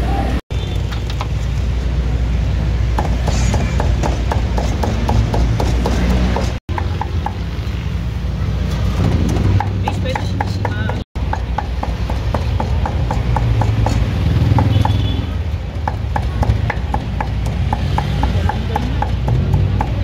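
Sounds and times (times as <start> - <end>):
cleaver chopping on wooden block: 3.0 - 7.4, 9.3 - 15.0, 15.9 - 20.0.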